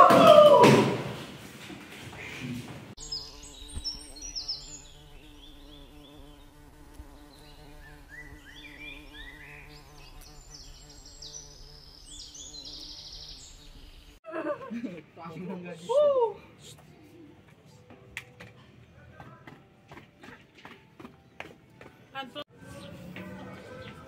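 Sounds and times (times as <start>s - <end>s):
birds chirping: 2.2s - 14.2s.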